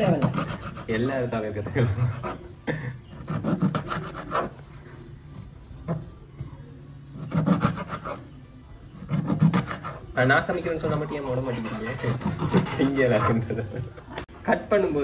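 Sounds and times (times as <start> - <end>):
knife sawing through fish: 0.0 - 1.1, 3.1 - 4.6, 7.2 - 8.3, 9.0 - 10.2, 10.8 - 13.4.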